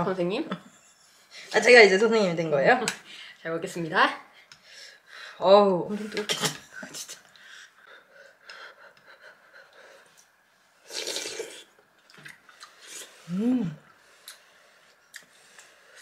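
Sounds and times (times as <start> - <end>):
person slurping soup: 10.8 - 11.7
person humming mm: 13.2 - 13.9.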